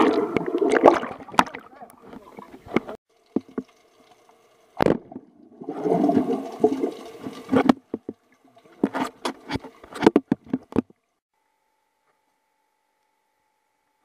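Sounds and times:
underwater bubbles gurgling: 0.0 - 2.6, 4.8 - 8.8.

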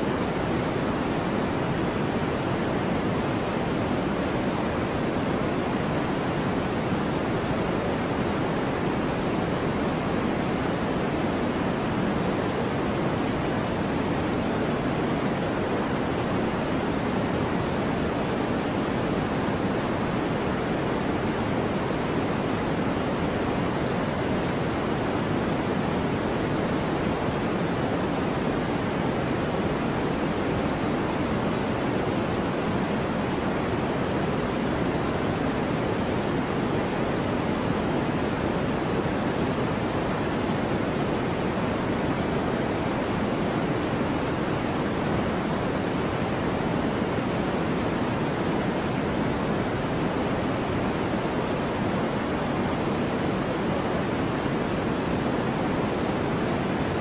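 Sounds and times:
steady low white noise hiss: 0.0 - 57.0.

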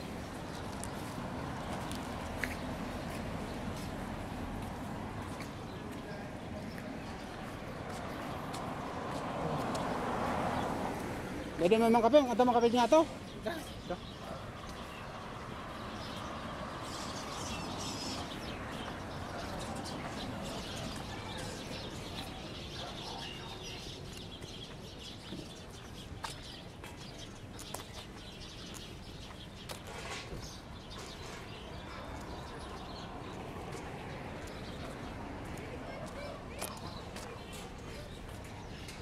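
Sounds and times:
birds chirping: 0.0 - 39.0
traffic noise: 0.0 - 39.0.

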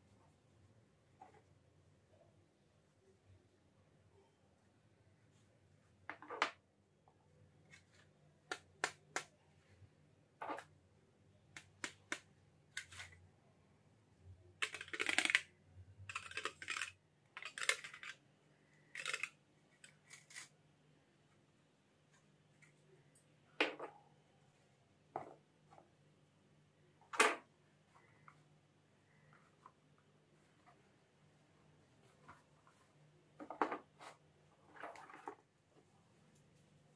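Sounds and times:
rustling and scraping: 31.9 - 35.6.

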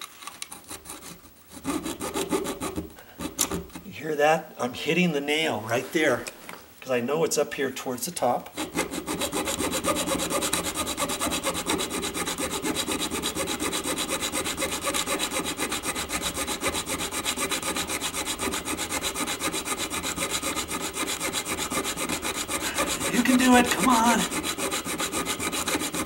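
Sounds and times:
hacksaw sawing through metal: 0.6 - 3.8, 8.5 - 26.0.

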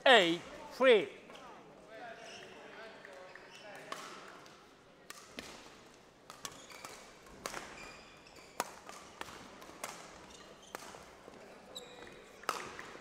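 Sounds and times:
rackets hitting shuttlecock: 3.7 - 11.4, 12.0 - 13.0.

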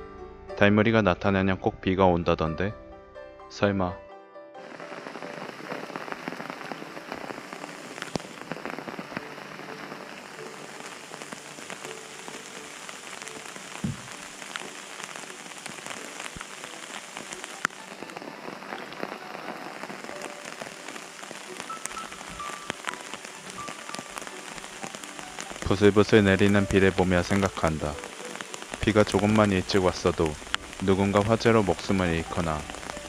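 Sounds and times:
light drizzle pattering: 4.6 - 33.0
sharp knocks: 13.8 - 14.1.

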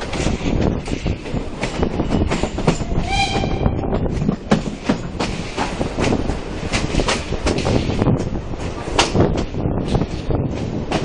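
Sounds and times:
steam train rumble: 0.0 - 11.0
train wheels clattering over rail joints: 0.0 - 11.0
high train whistle toot: 3.0 - 3.8.

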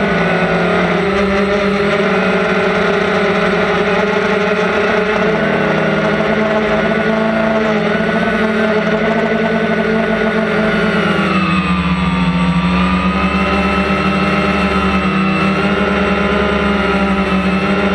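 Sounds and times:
drone propellers whining: 0.0 - 17.9.

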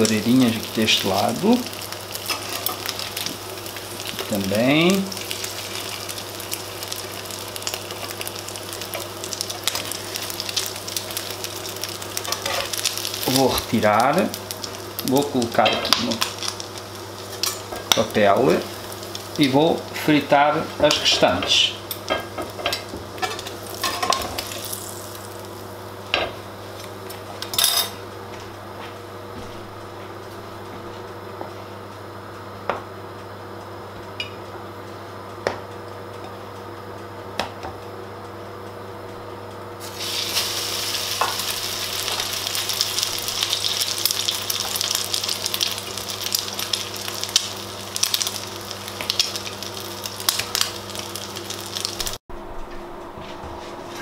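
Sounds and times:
loud popping sizzle: 0.0 - 20.0, 22.2 - 26.2, 39.8 - 52.2
oil sizzling in frying pan: 0.0 - 26.0, 39.8 - 52.2.

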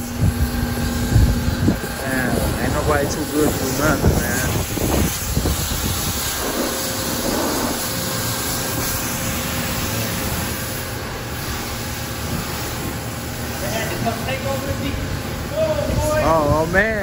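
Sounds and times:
pressure washer water spray: 0.0 - 17.0.

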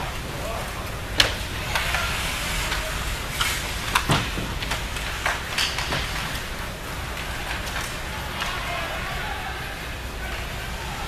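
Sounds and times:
hockey sticks clacking on puck: 0.7 - 9.5.

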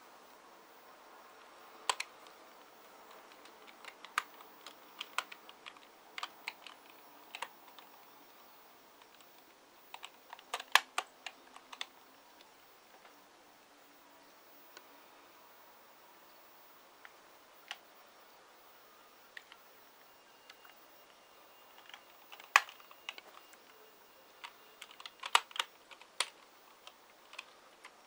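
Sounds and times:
keyboard keys clicking: 1.9 - 2.4, 3.0 - 8.0, 9.0 - 11.9, 21.7 - 28.0.

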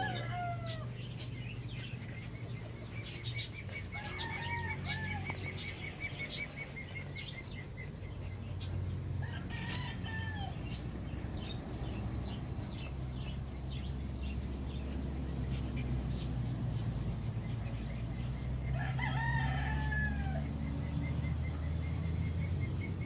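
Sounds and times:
puppy paws scratching dirt: 0.0 - 15.0
birds calling: 0.0 - 23.0.

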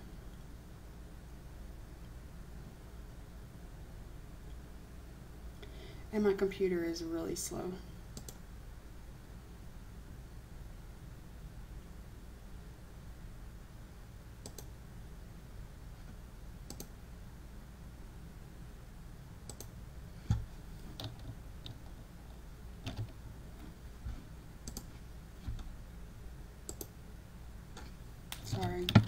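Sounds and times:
low steady hum: 0.0 - 29.0
computer clicks: 8.1 - 8.4, 14.4 - 14.8, 16.6 - 17.0, 19.4 - 19.8, 24.6 - 24.9, 26.7 - 27.0.

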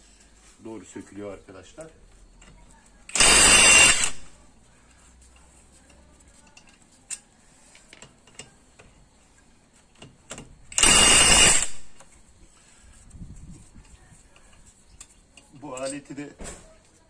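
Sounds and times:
impact wrench hammering: 3.1 - 4.3, 10.3 - 12.0.

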